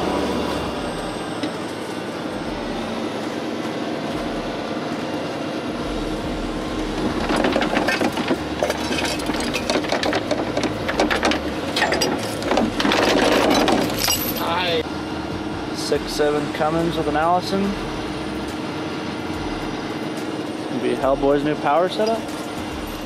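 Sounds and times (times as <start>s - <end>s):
truck engine running: 0.0s - 23.0s
metallic clanking and rattling: 6.2s - 14.7s, 22.0s - 23.0s.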